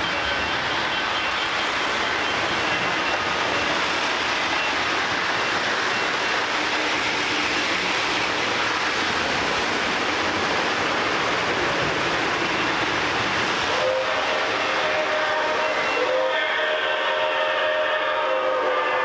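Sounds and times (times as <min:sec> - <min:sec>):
locomotive whistle: 0:00.0 - 0:07.6, 0:13.5 - 0:19.0
model trains rumbling on track: 0:00.0 - 0:19.0.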